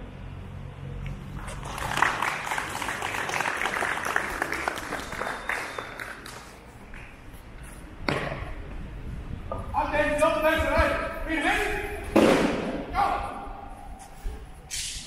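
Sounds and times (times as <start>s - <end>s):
audience applauding: 1.4s - 6.7s.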